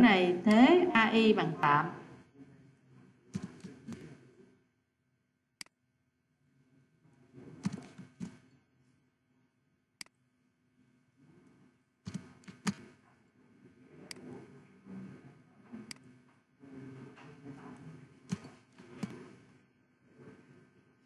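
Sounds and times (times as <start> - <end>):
mouse and keyboard clicks: 7.6 - 8.4, 12.1 - 13.0, 18.3 - 19.3.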